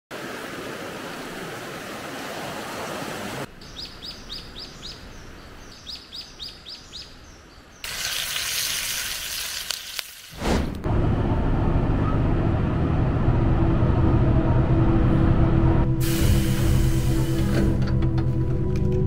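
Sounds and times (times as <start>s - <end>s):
river water rushing: 0.1s - 3.5s
bird chirping: 3.5s - 7.9s
food sizzling in a pan: 7.8s - 10.4s.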